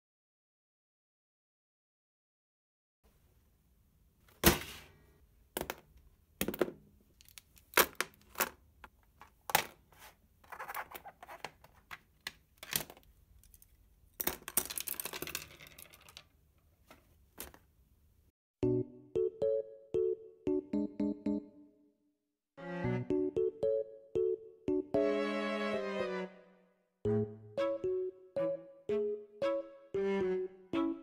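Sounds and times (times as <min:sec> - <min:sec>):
rustling and scraping: 0:09.7 - 0:11.9.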